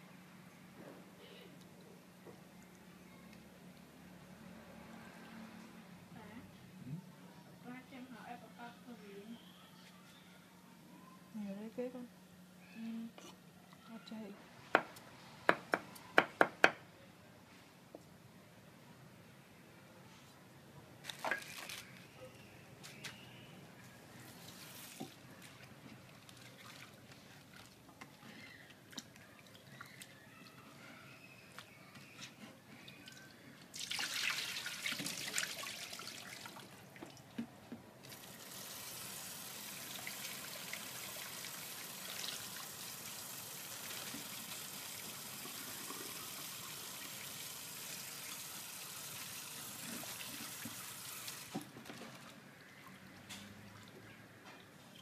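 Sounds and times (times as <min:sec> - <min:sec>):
handling vegetables in water: 0:24.4 - 0:30.7
tap running steadily: 0:37.0 - 0:52.0.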